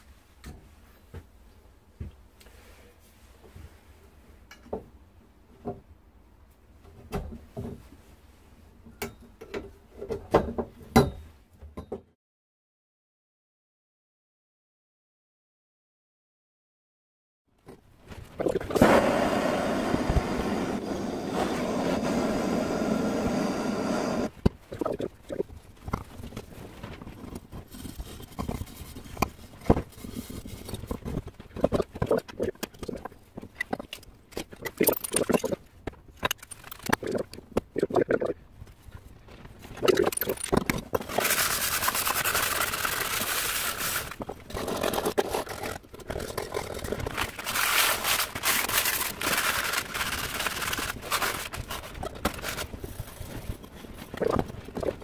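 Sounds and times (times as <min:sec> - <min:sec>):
blow lamp flame hissing: 0:18.8 - 0:24.3.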